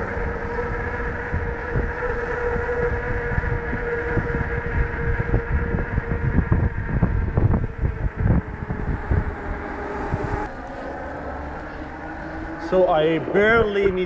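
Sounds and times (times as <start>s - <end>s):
faint electric bike whine: 0.0s - 14.0s
wind buffeting microphone: 0.0s - 14.0s.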